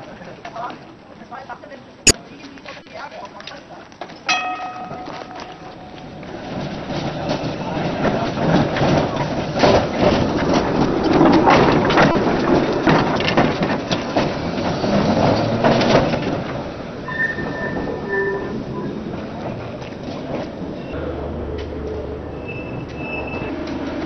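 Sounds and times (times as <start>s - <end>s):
tram wheels clattering over rails: 3.3s - 24.0s
tram wheel squeal: 4.3s - 21.0s, 22.0s - 24.0s.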